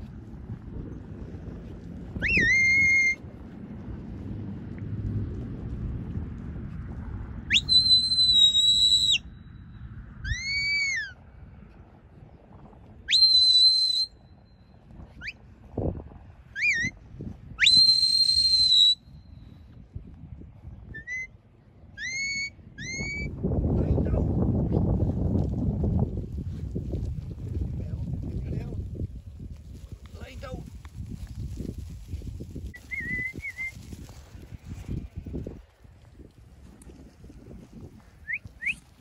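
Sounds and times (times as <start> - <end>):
shepherd's whistle blasts: 2.2 - 3.2, 7.5 - 9.2, 13.1 - 14.2, 17.6 - 19.0, 22.0 - 23.3
short rising whistles: 2.2 - 3.2, 7.5 - 9.4, 13.1 - 14.2, 17.6 - 19.1, 32.8 - 33.8, 38.2 - 38.8.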